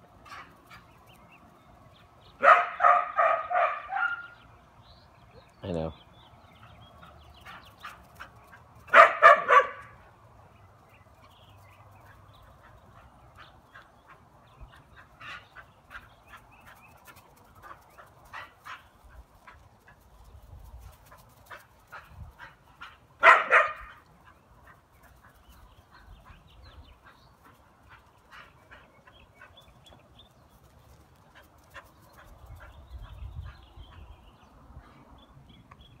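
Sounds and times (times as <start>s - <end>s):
dog barking: 2.4s - 4.4s, 8.9s - 10.0s, 23.2s - 24.0s.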